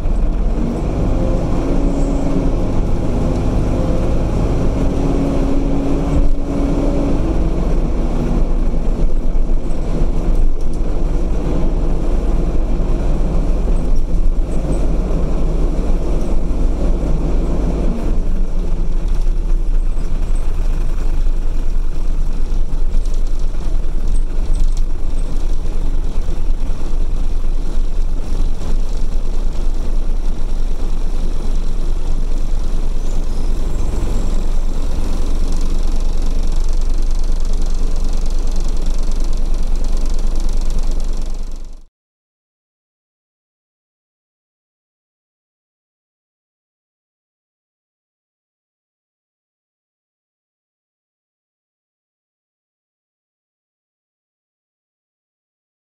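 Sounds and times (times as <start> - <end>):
diesel bus engine droning: 0.0 - 41.9
road noise: 0.0 - 41.9.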